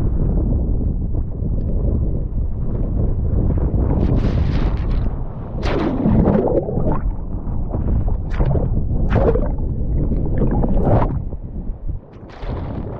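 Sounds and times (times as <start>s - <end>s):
wind buffeting microphone: 0.0s - 12.9s
water splashing: 8.1s - 11.4s.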